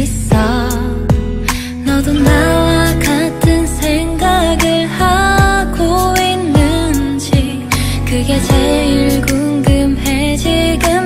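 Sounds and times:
pop music with steady beat: 0:00.0 - 0:11.0.

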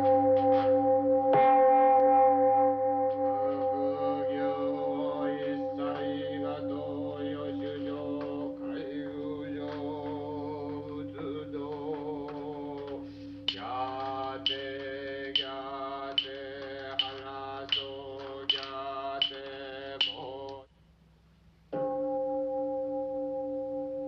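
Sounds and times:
men chanting on a drone: 0:03.4 - 0:20.7
sharp wooden knock: 0:11.8 - 0:15.6, 0:16.2 - 0:20.3.

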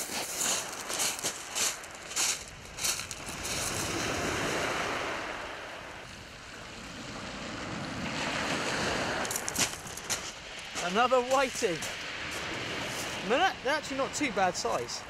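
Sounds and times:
waves washing over shingle: 0:00.0 - 0:15.0.

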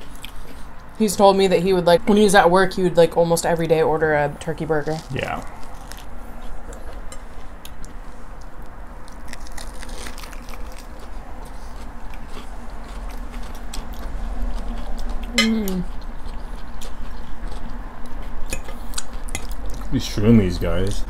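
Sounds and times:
chewing and crunching: 0:00.0 - 0:00.9, 0:04.8 - 0:20.0
person humming mm: 0:15.3 - 0:15.9.

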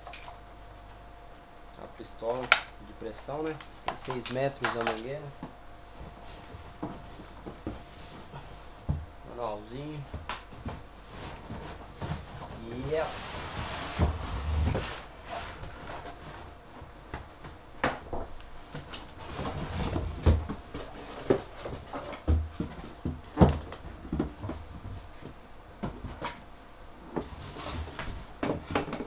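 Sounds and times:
cardboard rustling and scraping: 0:10.6 - 0:16.6, 0:18.7 - 0:25.3, 0:27.1 - 0:29.0.

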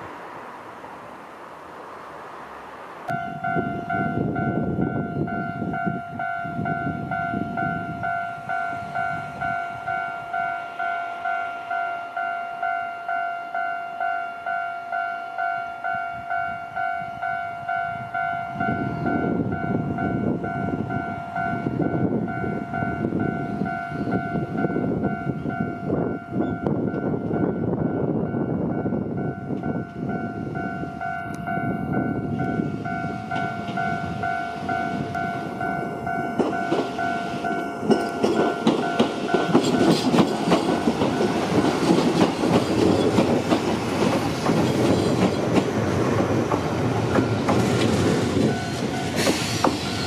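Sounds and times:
electric train rumbling: 0:00.0 - 0:50.0.

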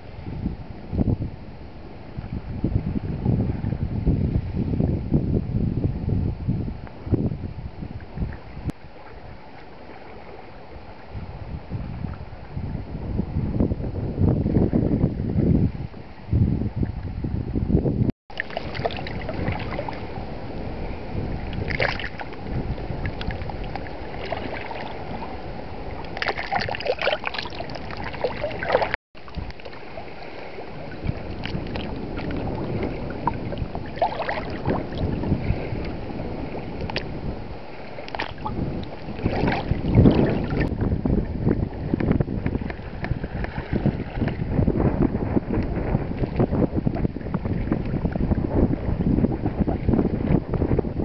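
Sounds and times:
wind rumble on microphone: 0:00.0 - 0:51.0
waves lapping against rocks: 0:18.3 - 0:51.0.

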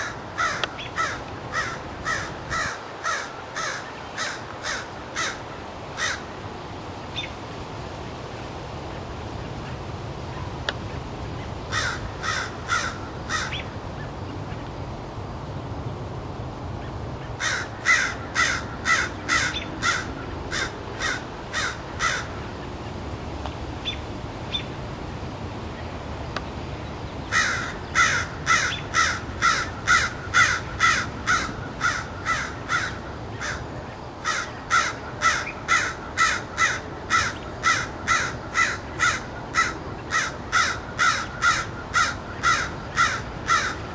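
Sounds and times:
crow cawing: 0:00.0 - 0:05.4, 0:06.0 - 0:06.3, 0:11.7 - 0:13.6, 0:17.4 - 0:22.4, 0:27.3 - 0:43.9.

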